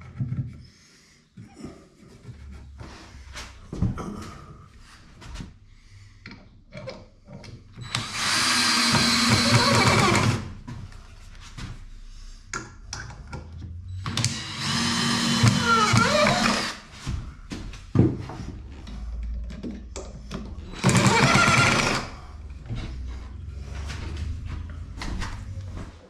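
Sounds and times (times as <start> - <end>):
cordless drill drilling into wood: 7.8 - 10.4, 14.1 - 16.8, 20.7 - 22.1.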